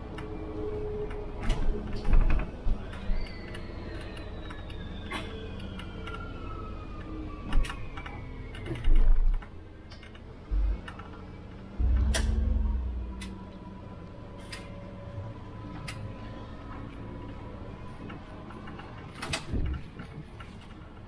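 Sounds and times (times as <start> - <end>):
bus rattles and knocks: 0.0 - 21.0
heavy thumps: 11.8 - 13.5
mechanical whine falling in pitch: 11.8 - 14.2.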